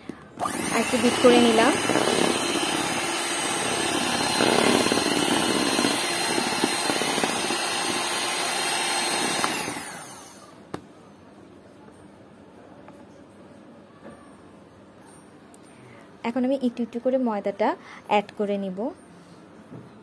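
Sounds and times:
electric hand mixer running: 0.4s - 10.5s.

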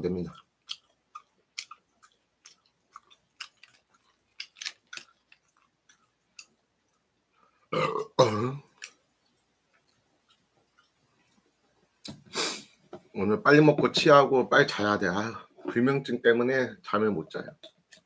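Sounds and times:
man chewing: 0.3s - 8.0s, 8.7s - 12.8s
loud low burp: 7.7s - 8.7s.

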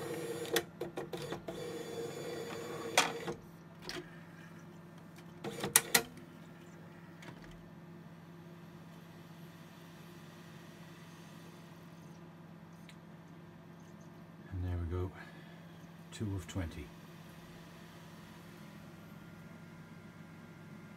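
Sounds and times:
loud clacks of disc tray: 2.9s - 3.4s
steady low hum: 2.9s - 20.9s.

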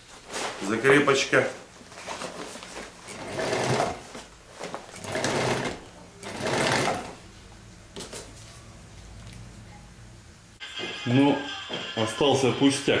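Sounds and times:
sewing machine stitching: 3.0s - 4.2s, 4.9s - 7.2s.

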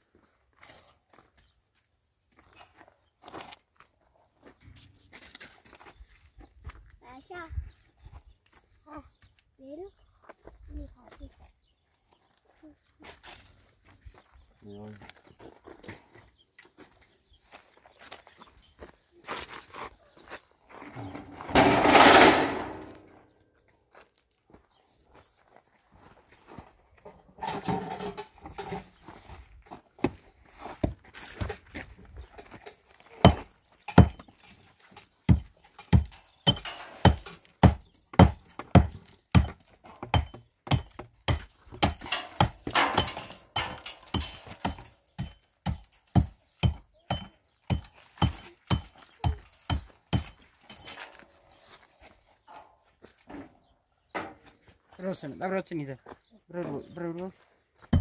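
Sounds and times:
rustling or scraping: 20.7s - 23.2s, 27.0s - 29.6s.

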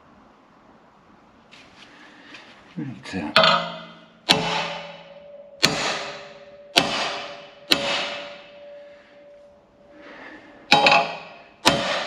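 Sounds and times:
metal-on-metal strikes ringing: 3.3s - 9.5s, 10.7s - 12.0s.

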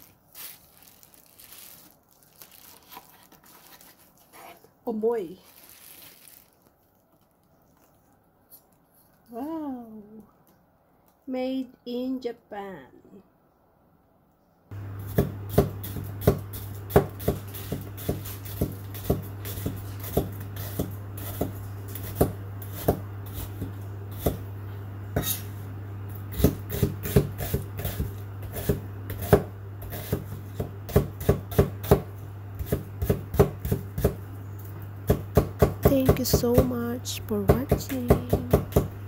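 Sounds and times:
steady low hum: 6.4s - 39.0s
knife chopping on wooden board: 15.0s - 24.5s, 26.3s - 34.2s, 35.1s - 36.8s, 37.5s - 38.9s.

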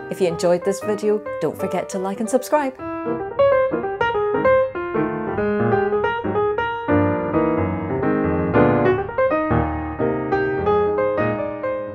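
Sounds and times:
piano music: 0.0s - 11.9s.

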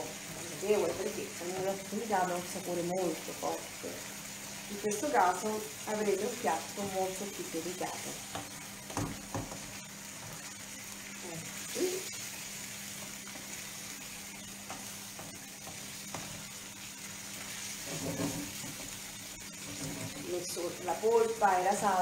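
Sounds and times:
sauce sizzling in a frying pan: 0.0s - 22.0s
stirring clatters: 17.8s - 18.9s.

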